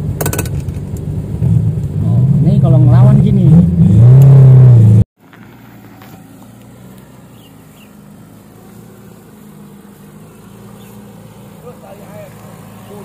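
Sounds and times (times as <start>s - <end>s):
loud engine noise inside cab: 0.0s - 9.5s
engine running low and steady: 0.0s - 13.0s.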